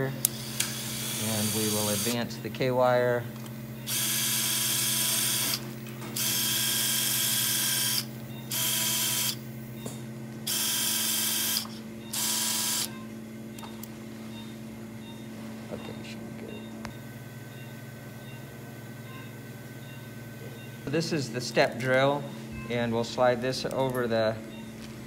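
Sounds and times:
surgical wire driver whirring: 0.2s - 2.4s, 3.4s - 9.5s, 10.4s - 13.9s.

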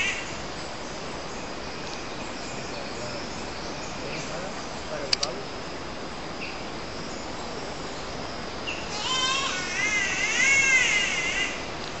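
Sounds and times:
high insect hum: 0.0s - 12.0s
catbird wailing call: 8.7s - 11.7s.

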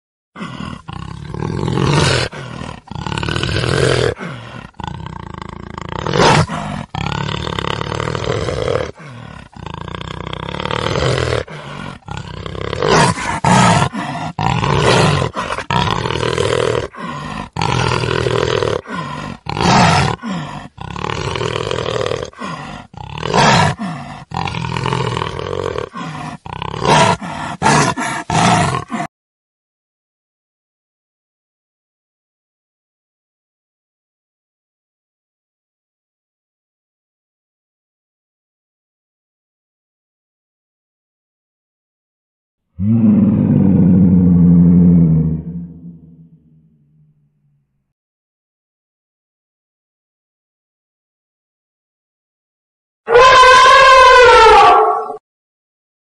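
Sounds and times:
tiger roaring: 0.4s - 29.1s, 42.8s - 47.1s, 53.1s - 55.2s.

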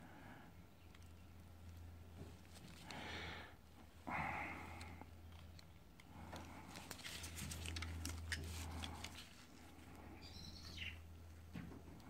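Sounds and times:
low steady hum: 0.0s - 12.0s
gloved hands crinkling tape: 0.8s - 4.0s, 4.6s - 11.4s.

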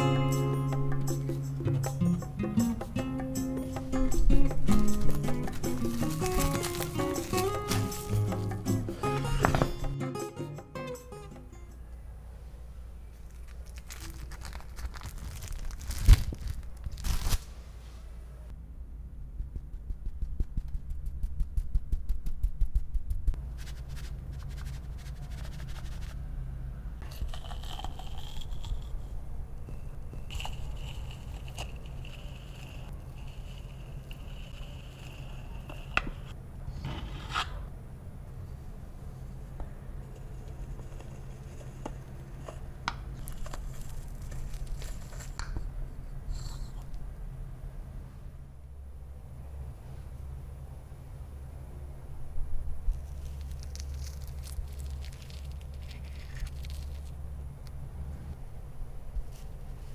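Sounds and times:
cocoa powder sifting ticks: 27.0s - 29.0s, 29.7s - 36.3s.

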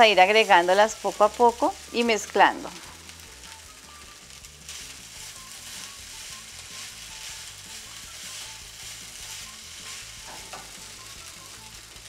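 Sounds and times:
food sizzling in a frying pan: 0.0s - 12.0s
spatula stirring food: 3.5s - 11.0s.

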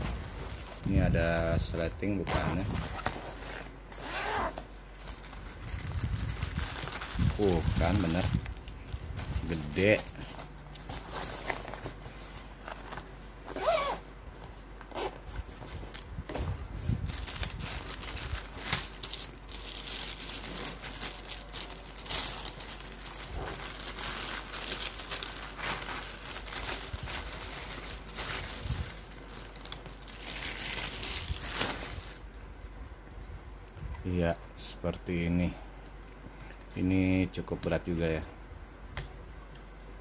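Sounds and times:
plastic wrapping crinkling: 0.2s - 13.9s, 16.8s - 32.3s.

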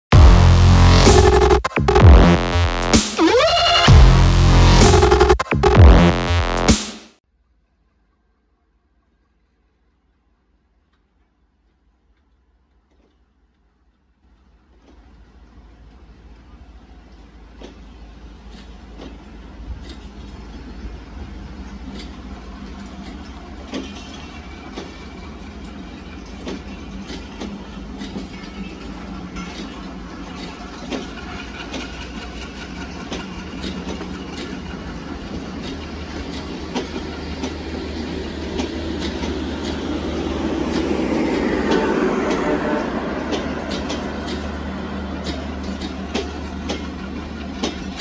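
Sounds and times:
train rumble: 0.0s - 6.8s, 14.4s - 48.0s
wheels clicking over rail joints: 14.3s - 48.0s.

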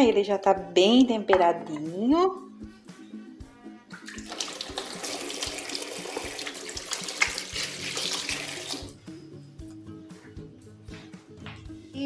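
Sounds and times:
tap water running into sink: 3.9s - 9.0s.

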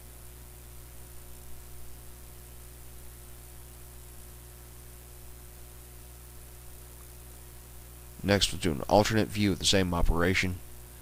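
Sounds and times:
low electrical hum: 0.0s - 11.0s
even hiss: 8.0s - 11.0s.

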